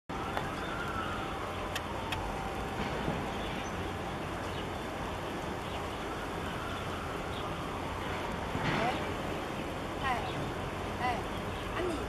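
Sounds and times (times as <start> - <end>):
outdoor rumble and hiss: 0.1 - 12.0
faint clicks: 1.7 - 2.3.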